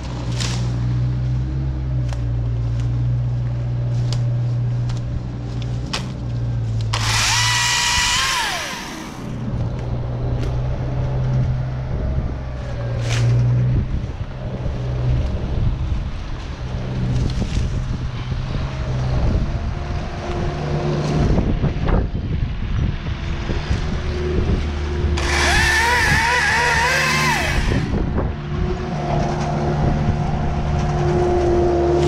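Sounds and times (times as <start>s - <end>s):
branches snapping: 0.0s - 1.4s, 2.0s - 10.6s, 13.0s - 13.6s
low drone: 0.0s - 32.0s
electric chainsaw whine: 6.9s - 9.4s, 25.2s - 28.2s.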